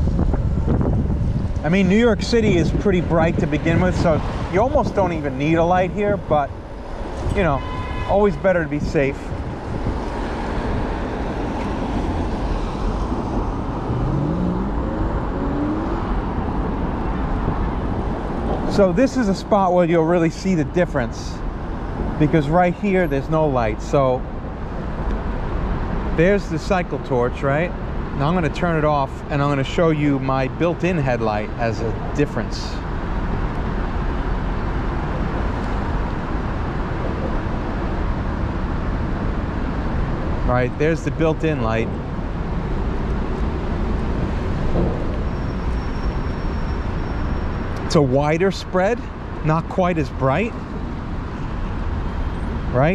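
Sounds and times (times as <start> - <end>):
wind on microphone: 0.0 - 18.7
street traffic: 0.0 - 52.9
wind and road rumble: 0.0 - 52.9
car engine accelerating: 9.8 - 18.3.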